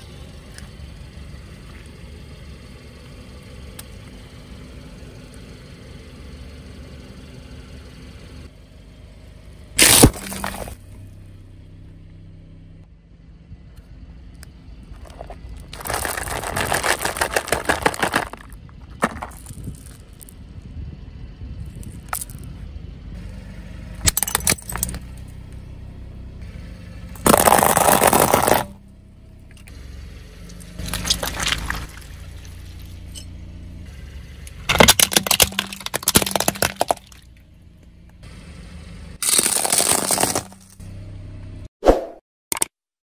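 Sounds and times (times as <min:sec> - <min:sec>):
car running hum: 0:00.0 - 0:41.7
tyre crushing cracking plastic: 0:09.8 - 0:10.8, 0:15.0 - 0:20.0, 0:27.2 - 0:28.7, 0:30.8 - 0:32.1, 0:34.7 - 0:37.2, 0:39.2 - 0:40.8.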